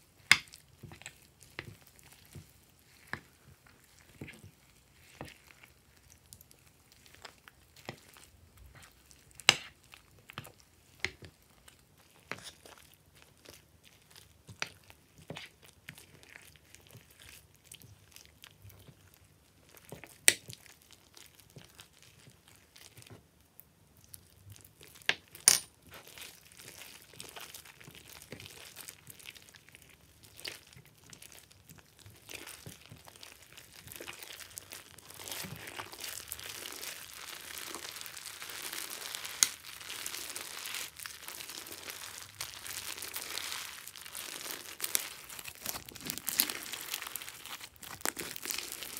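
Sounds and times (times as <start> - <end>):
slime crackling and clicking: 39.2 - 39.6.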